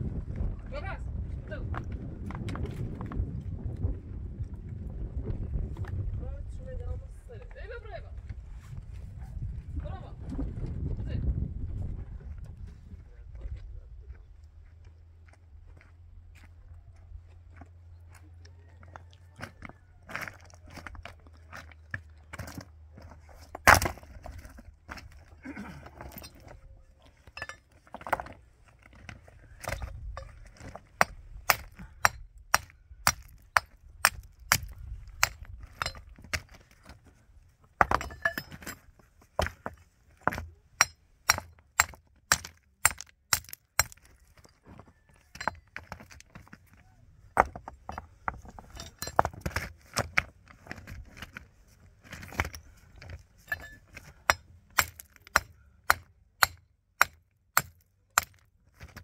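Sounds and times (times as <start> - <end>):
hammer striking stone: 23.6 - 24.0, 29.6 - 36.6, 37.8 - 38.8, 39.4 - 44.1, 45.3 - 46.2, 53.5 - 59.0.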